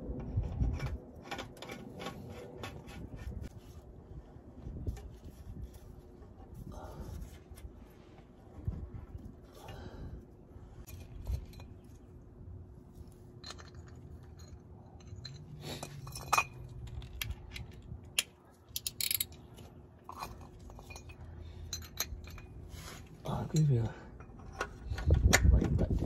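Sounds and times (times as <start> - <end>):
metal tools clicking and clinking: 13.4 - 22.7.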